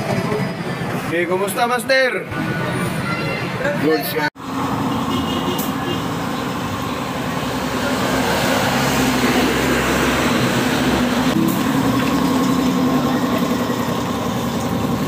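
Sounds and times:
scooter engine running: 11.1 - 15.0.

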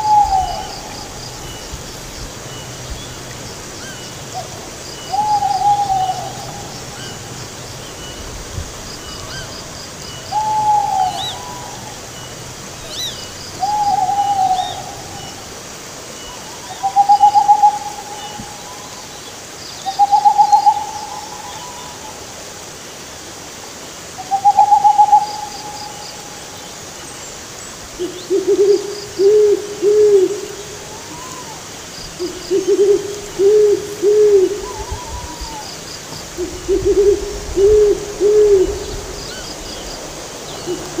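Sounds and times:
owls hooting: 3.8 - 7.3, 10.2 - 12.0, 12.9 - 15.4, 16.7 - 18.9, 28.0 - 35.8, 36.4 - 39.6.

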